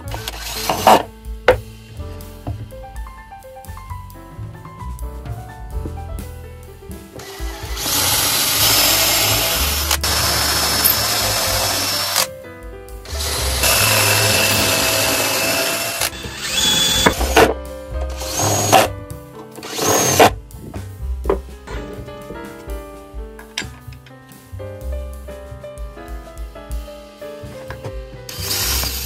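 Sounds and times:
background music: 0.0s - 29.0s
cordless drill boring wood: 0.2s - 1.0s, 7.7s - 12.3s, 13.1s - 17.5s, 18.1s - 18.9s, 19.6s - 20.3s, 28.4s - 29.0s.

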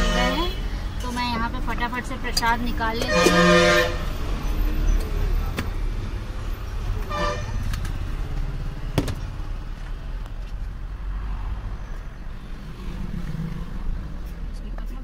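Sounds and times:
vehicle horn honking: 0.0s - 0.6s, 3.0s - 4.1s, 7.0s - 7.7s
road traffic rumble: 0.0s - 15.0s.

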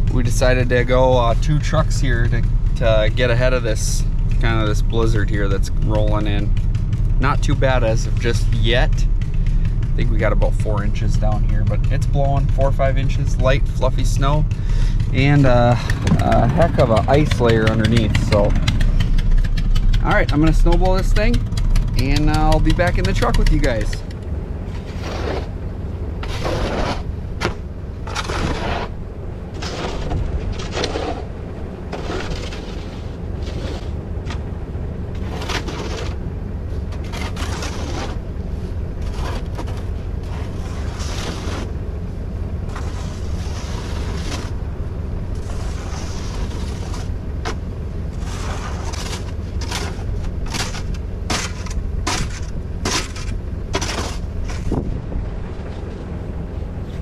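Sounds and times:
steady low rumble: 0.0s - 57.0s
snow shovel scraping ice: 24.8s - 25.6s, 26.2s - 27.1s, 28.0s - 29.0s, 29.6s - 31.3s, 31.9s - 34.0s, 35.2s - 36.2s, 36.9s - 38.3s, 39.0s - 41.8s, 42.7s - 44.6s, 45.4s - 54.8s.

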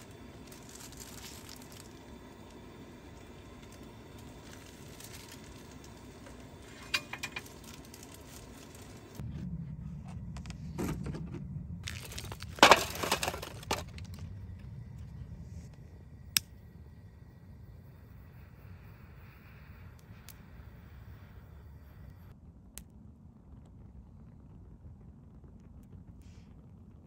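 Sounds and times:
charcoal clattering into metal pan: 3.6s - 9.2s, 11.8s - 14.2s.

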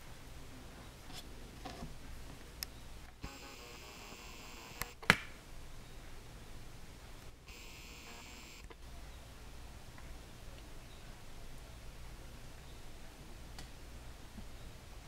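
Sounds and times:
sharp clicks: 4.6s - 5.3s.

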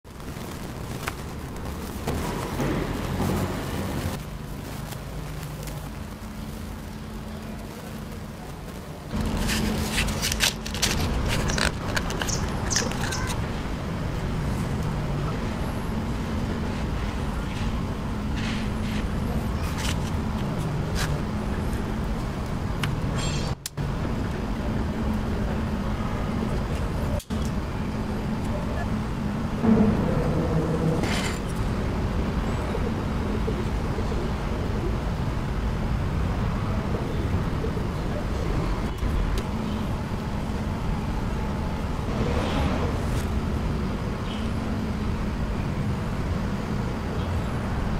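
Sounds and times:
low background rumble: 0.1s - 47.9s
matchbox clicks and scrapes: 9.2s - 13.4s.

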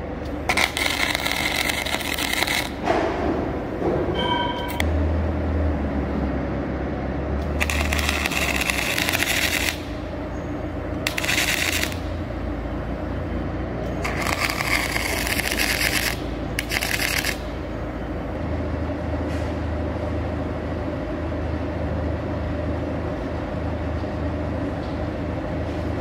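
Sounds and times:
steady low hum: 0.0s - 26.0s
arc welding crackling: 0.2s - 2.9s, 7.4s - 12.6s, 13.9s - 17.7s.

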